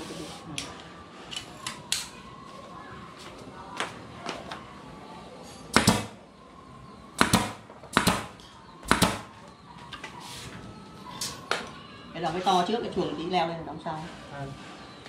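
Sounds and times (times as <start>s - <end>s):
nail gun firing into wood: 5.7s - 6.2s, 7.2s - 9.3s.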